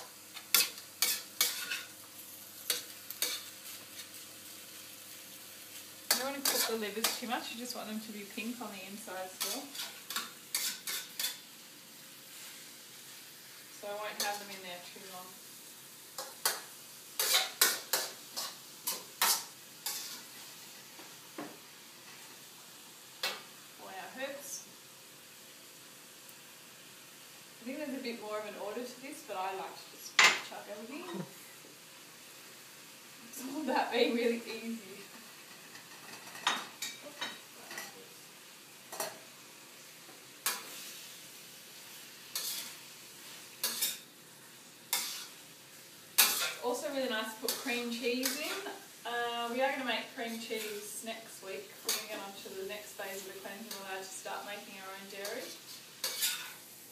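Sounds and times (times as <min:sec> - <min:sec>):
faint frying sizzle: 0:00.0 - 0:56.9
metal utensil scraping a wok: 0:00.4 - 0:01.9, 0:02.6 - 0:04.2, 0:06.1 - 0:07.6, 0:09.0 - 0:11.5, 0:13.8 - 0:14.7, 0:17.2 - 0:20.7, 0:34.6 - 0:38.0, 0:40.4 - 0:41.1, 0:41.9 - 0:44.0, 0:44.9 - 0:45.4, 0:46.2 - 0:48.8, 0:49.8 - 0:51.0, 0:51.8 - 0:54.3, 0:54.9 - 0:56.7.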